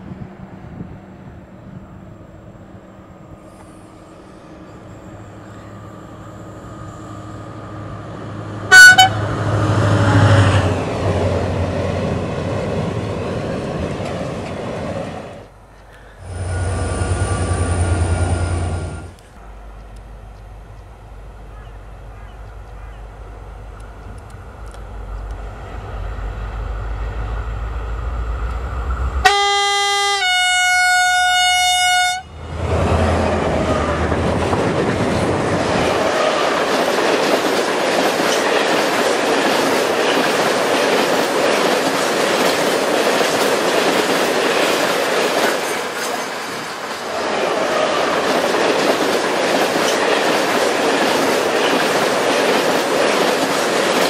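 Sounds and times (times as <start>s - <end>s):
train wheels rushing on rail: 0.0s - 30.3s, 31.2s - 54.0s
two-note locomotive horn: 8.7s - 10.7s, 29.2s - 32.5s
locomotive engine rumble: 31.0s - 46.4s.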